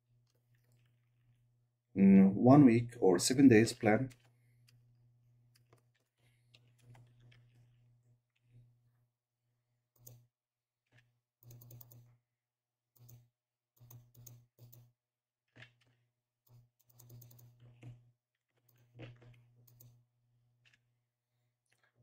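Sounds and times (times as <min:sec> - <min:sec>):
faint typing on keyboard: 0:00.2 - 0:01.4, 0:03.3 - 0:04.8, 0:05.5 - 0:08.6, 0:09.9 - 0:10.3, 0:10.9 - 0:12.2, 0:13.0 - 0:14.9, 0:15.5 - 0:20.0.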